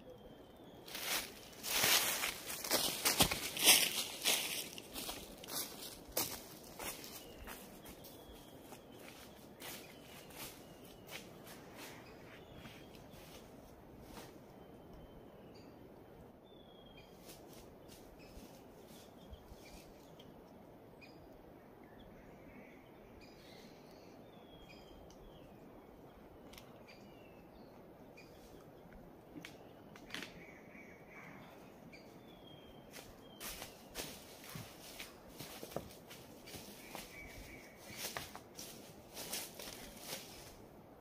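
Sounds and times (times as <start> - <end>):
bird chirps: 0.0 - 2.9
low steady hiss: 0.0 - 41.0.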